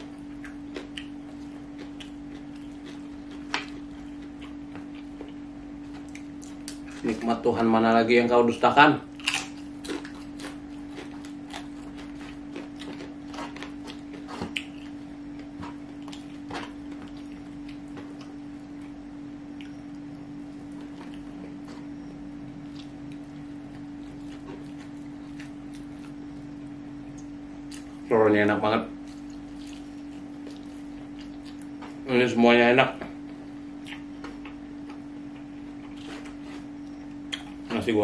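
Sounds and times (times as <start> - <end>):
steady low hum: 0.0 - 38.0
chewing: 0.3 - 7.2, 9.2 - 18.9, 29.0 - 32.0.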